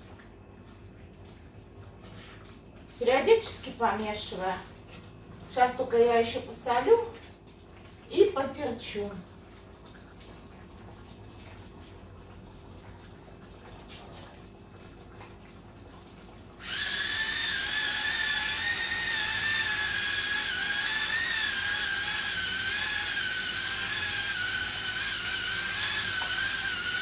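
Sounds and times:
electric spice grinder whining: 16.6s - 27.0s.

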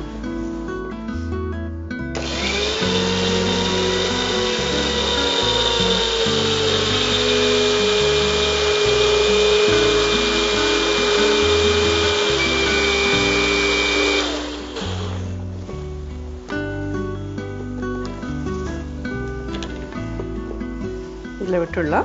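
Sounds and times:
rough grinding noise: 2.2s - 15.3s
mixer grinder motor whine: 2.2s - 15.5s.

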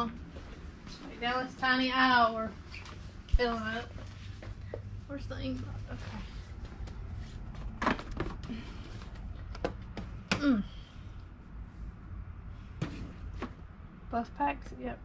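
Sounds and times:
low steady hum: 0.0s - 15.0s
knocks and thumps on shelves: 12.8s - 13.6s.

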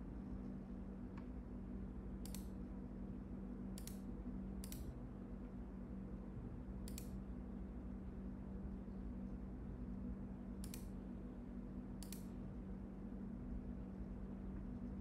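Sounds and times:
steady low hum: 0.0s - 15.0s
computer mouse clicking: 2.2s - 2.5s, 3.8s - 4.0s, 4.6s - 4.9s, 6.8s - 7.2s, 10.6s - 10.9s, 12.0s - 12.3s.

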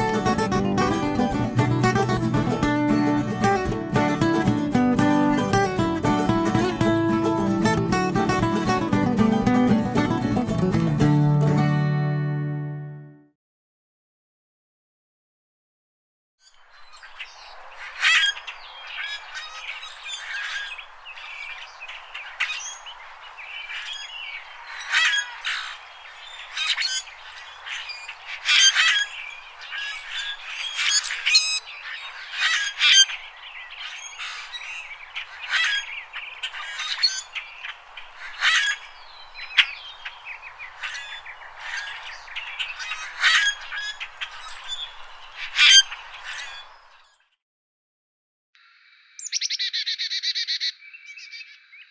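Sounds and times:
grackles calling: 16.7s - 47.0s.

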